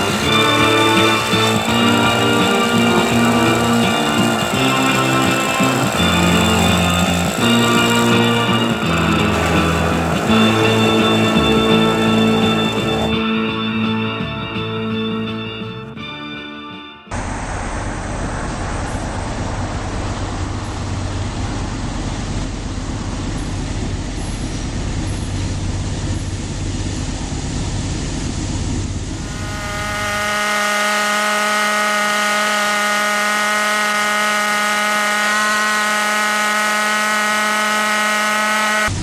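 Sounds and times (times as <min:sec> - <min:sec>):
train horn chord: 0:00.0 - 0:14.4, 0:29.2 - 0:39.0
diesel locomotive rumbling: 0:00.0 - 0:16.0, 0:17.1 - 0:39.0.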